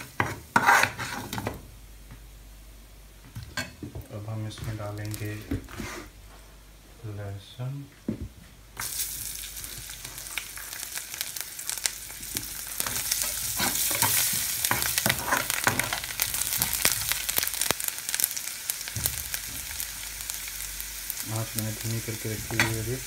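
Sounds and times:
oil sizzling in frying pan: 0:08.8 - 0:23.0.

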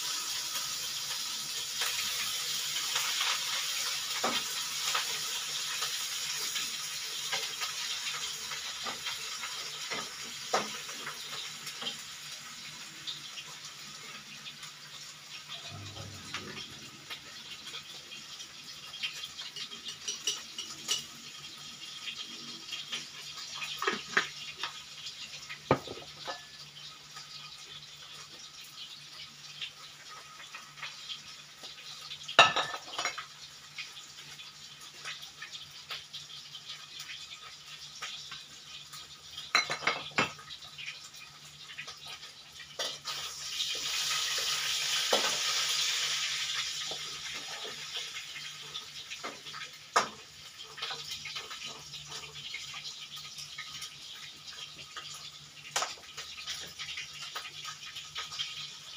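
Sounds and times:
sizzling in hot wok: 0:00.0 - 0:58.9
metal pots and lids clattering: 0:19.4 - 0:21.2, 0:23.7 - 0:24.8, 0:25.7 - 0:26.6, 0:32.4 - 0:33.3, 0:39.5 - 0:40.4.

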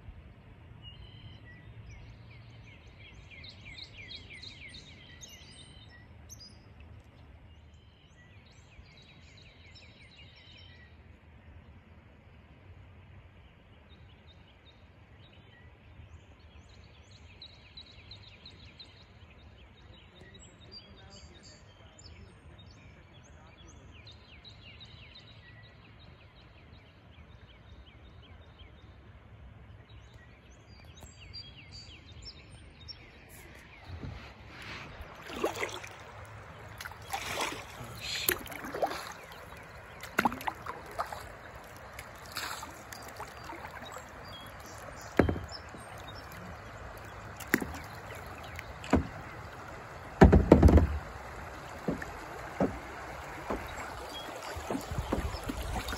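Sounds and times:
paddle splashing in river: 0:24.6 - 0:55.9
paddle knocking kayak hull: 0:33.7 - 0:55.9.

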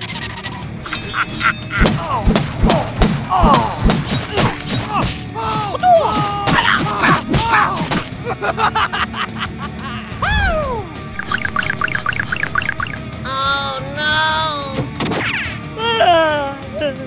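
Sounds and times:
playful background music: 0:00.0 - 0:17.0
sharp knocks and clatters: 0:01.8 - 0:05.3.

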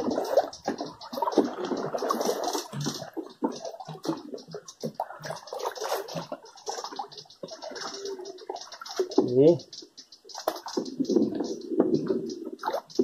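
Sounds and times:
river water splashing: 0:00.0 - 0:09.2.

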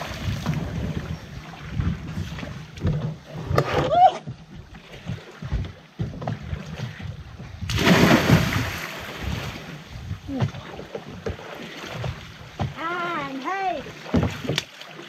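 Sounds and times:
water sloshing: 0:00.0 - 0:15.0
loud splash into water: 0:07.7 - 0:09.7.

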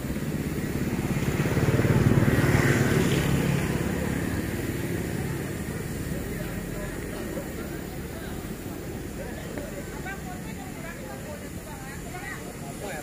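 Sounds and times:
engine throbbing: 0:00.0 - 0:10.2.

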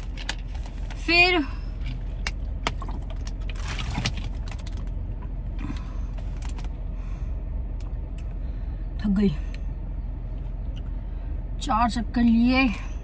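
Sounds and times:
car cabin rumble: 0:00.0 - 0:13.0
plastic bottle crinkling: 0:02.6 - 0:05.0.

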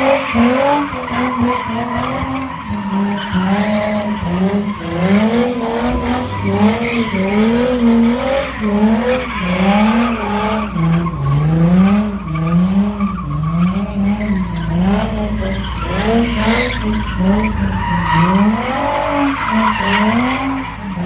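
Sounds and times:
car engine revving high: 0:00.0 - 0:21.0.

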